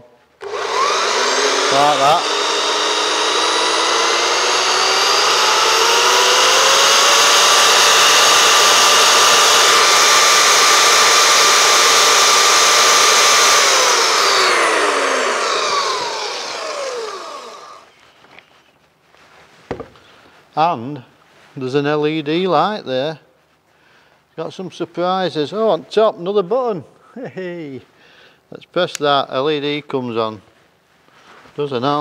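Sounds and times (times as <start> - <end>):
bandsaw whining: 0.4 - 17.9.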